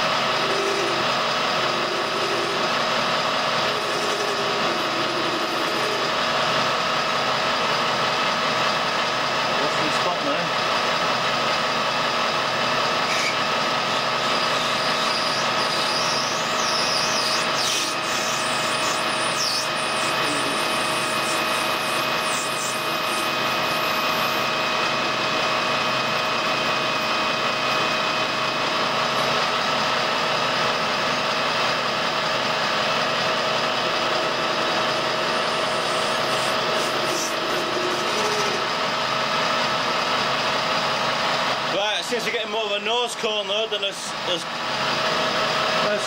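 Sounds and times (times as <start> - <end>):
tool cutting brass: 0.0 - 6.7, 13.0 - 30.2, 33.6 - 39.2
metal lathe gear whine: 0.0 - 46.0.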